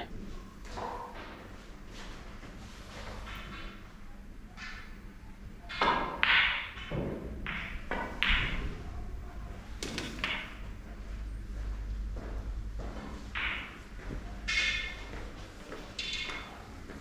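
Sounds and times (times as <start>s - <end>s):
snooker balls clicking: 5.7s - 8.7s, 9.8s - 10.8s, 13.2s - 15.1s, 15.8s - 16.5s
cue striking ball: 5.7s - 8.8s, 9.8s - 10.7s, 13.4s - 13.8s.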